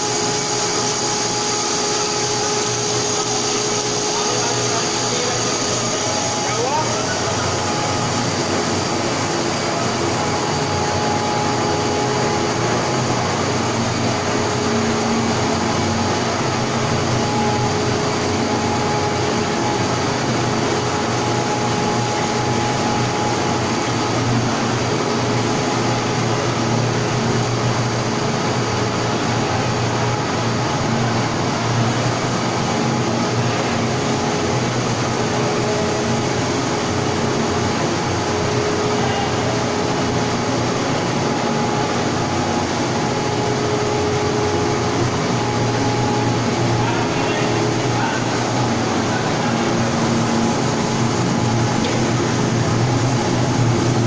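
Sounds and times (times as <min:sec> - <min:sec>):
faint machine hum: 0:00.0 - 0:54.0
steady machine noise: 0:00.0 - 0:54.0.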